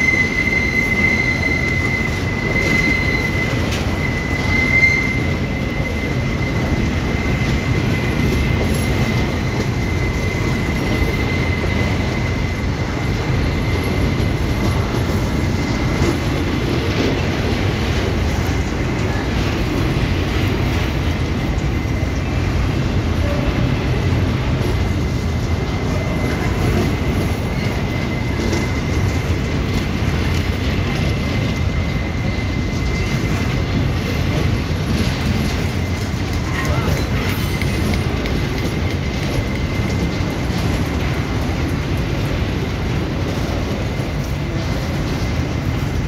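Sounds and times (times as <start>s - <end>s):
high-pitched wheel squeal: 0.0s - 19.2s
train wheels rumbling on rails: 0.0s - 46.0s.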